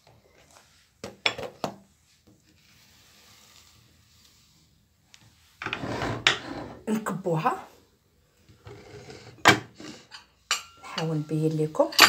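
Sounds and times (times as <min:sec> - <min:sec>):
cooking pot scraping and knocking: 0:05.6 - 0:06.9, 0:08.5 - 0:11.9.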